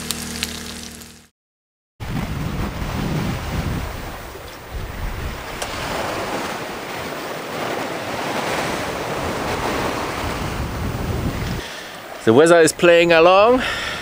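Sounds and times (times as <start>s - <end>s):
wind on microphone: 2.0s - 11.8s
sea water rushing past boat: 2.0s - 14.0s.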